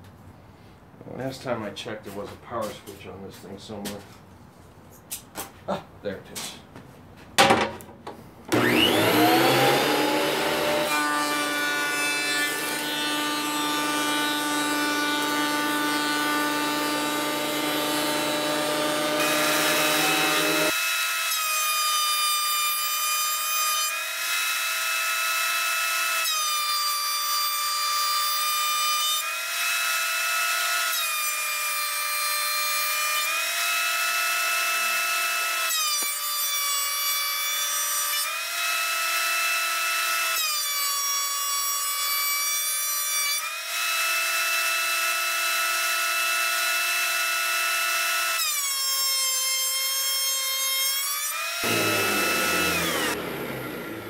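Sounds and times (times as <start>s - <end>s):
thickness planer motor whine: 8.5s - 20.7s, 51.6s - 54.0s
planer shaving board: 8.5s - 20.8s, 51.6s - 54.0s.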